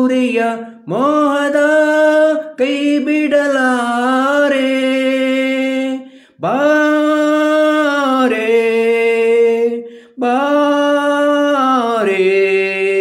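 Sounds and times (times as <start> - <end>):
man singing unaccompanied: 0.0 - 13.0
breath: 6.0 - 6.4, 9.8 - 10.2.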